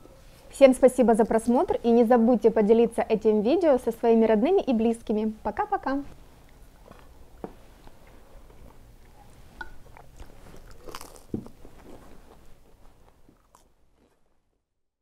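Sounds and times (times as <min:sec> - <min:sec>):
people eating at a table: 0:06.4 - 0:14.3.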